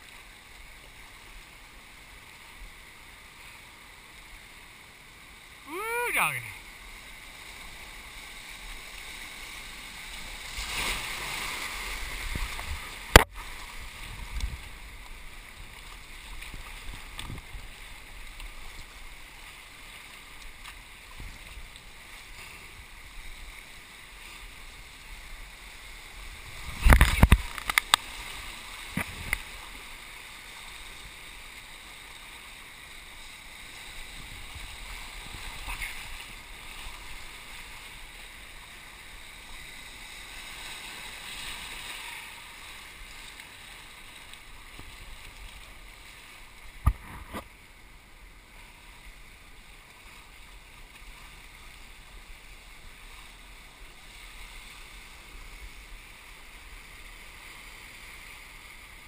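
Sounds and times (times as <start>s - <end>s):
whitewater rushing: 5.5s - 6.8s
water splashing around board: 10.2s - 22.8s.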